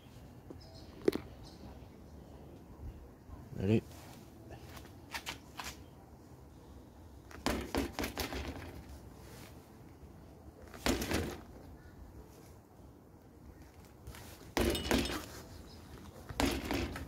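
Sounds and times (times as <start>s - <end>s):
bike bouncing on concrete: 7.3s - 9.0s, 14.5s - 15.4s, 16.2s - 17.0s
knocks and clatter: 14.6s - 15.3s, 16.4s - 17.0s.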